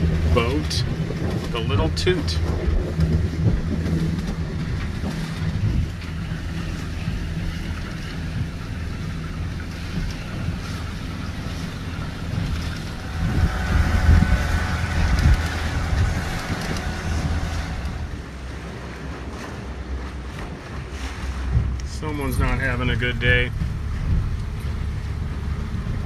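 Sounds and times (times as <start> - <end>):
boat motor running: 0.0 - 26.0
water washing past: 0.0 - 26.0
wind buffeting microphone: 0.0 - 26.0
high motor whine: 11.0 - 18.9.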